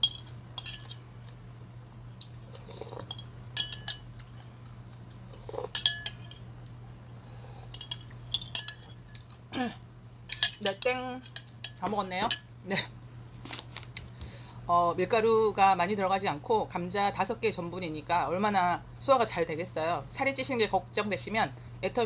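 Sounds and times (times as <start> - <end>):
person sipping broth: 2.5 - 3.2
spoon scraping ceramic bowl: 5.4 - 6.4, 7.6 - 9.0.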